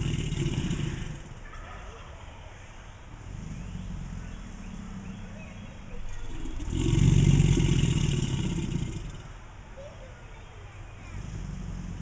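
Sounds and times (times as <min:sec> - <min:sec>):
alligator growling: 0:00.0 - 0:01.4, 0:03.2 - 0:09.4, 0:11.1 - 0:12.0.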